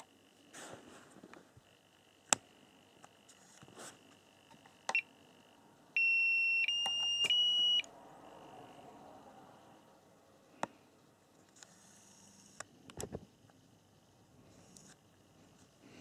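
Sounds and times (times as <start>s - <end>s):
battery charger short beeps: 6.0s - 7.8s.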